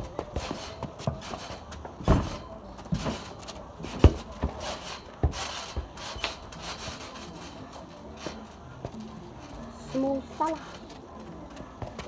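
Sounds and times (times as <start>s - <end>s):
football thudding on paving: 0.1s - 3.3s, 3.9s - 4.6s.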